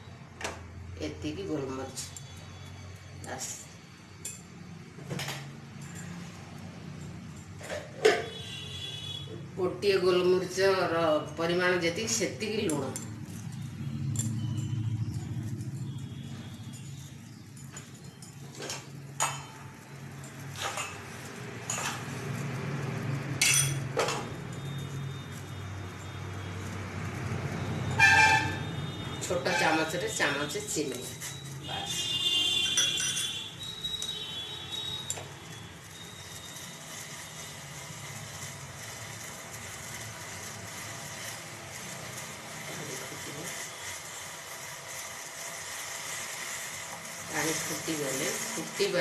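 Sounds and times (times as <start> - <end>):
gas burner rumbling: 0.0 - 49.0
metal kitchenware clinking: 3.4 - 8.6, 12.2 - 26.2, 27.8 - 37.1.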